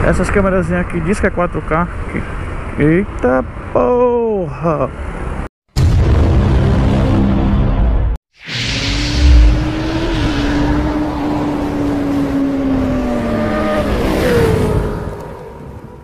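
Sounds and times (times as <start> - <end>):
deep boom: 5.8 - 10.8.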